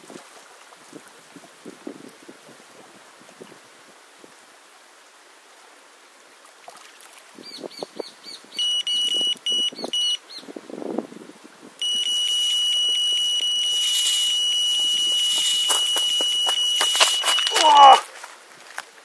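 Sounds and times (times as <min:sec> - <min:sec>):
bite alarm short beeps: 0:08.6 - 0:10.2, 0:11.8 - 0:18.0
bite alarm steady tone: 0:08.6 - 0:10.2, 0:11.8 - 0:18.0
short electronic chirps: 0:08.6 - 0:10.2, 0:11.8 - 0:17.6.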